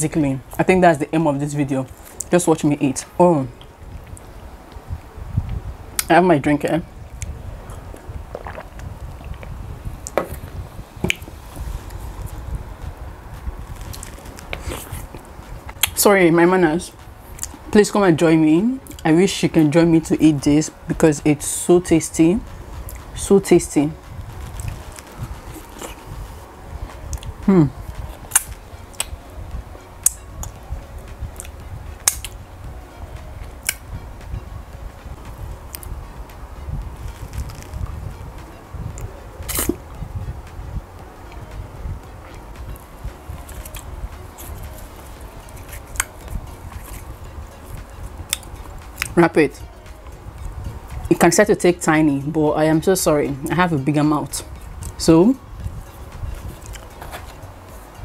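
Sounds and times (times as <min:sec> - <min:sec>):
low background rumble: 0:00.0 - 0:58.0
lip smacks and mouth clicks: 0:07.1 - 0:10.2, 0:31.4 - 0:32.4, 0:39.0 - 0:39.8, 0:56.6 - 0:56.9
sip of juice: 0:07.7 - 0:09.4.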